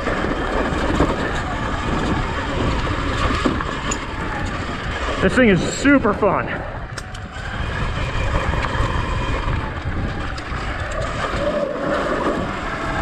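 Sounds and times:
tyres rolling over dirt: 0.0 - 13.0
wind buffeting microphone: 0.0 - 13.0.

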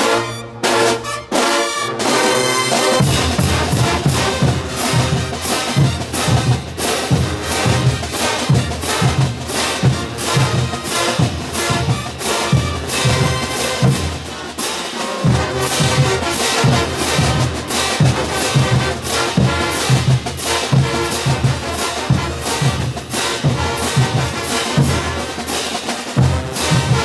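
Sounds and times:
brass band playing: 0.0 - 27.0
bass drums: 3.0 - 14.2.

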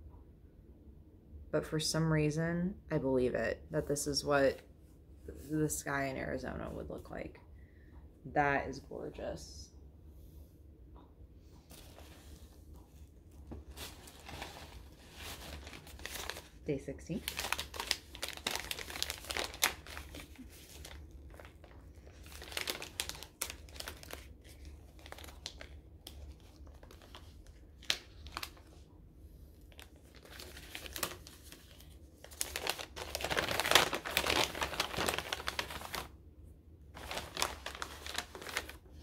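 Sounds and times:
paper bag rustling and crumpling: 11.7 - 28.8, 29.6 - 36.1, 36.9 - 39.0.

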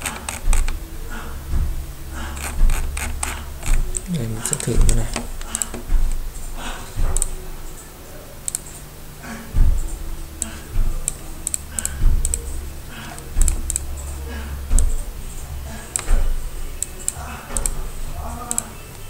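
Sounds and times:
keyboard typing: 2.2 - 8.8, 9.6 - 15.0.

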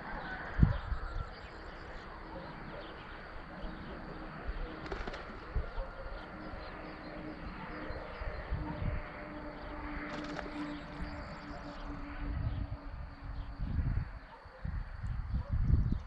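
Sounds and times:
dove cooing: 1.8 - 9.2.

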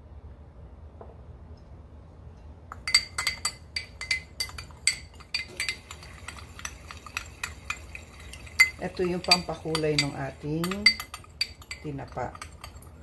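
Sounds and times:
metal spoon clinking on glass bowl: 2.8 - 13.0.

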